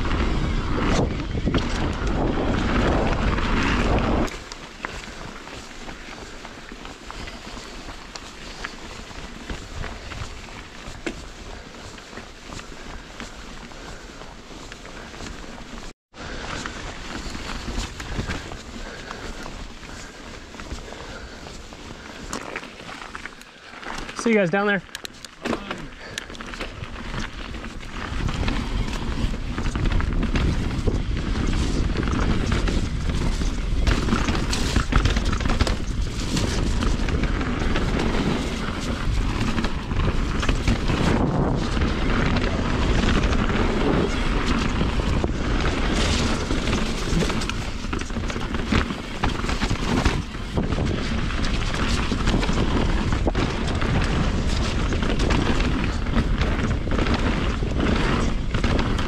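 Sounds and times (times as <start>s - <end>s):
wind buffeting microphone: 0.0s - 14.1s, 26.0s - 59.0s
tyres rolling over dirt and rocks: 0.0s - 59.0s
bike knocks and rattles: 25.0s - 59.0s.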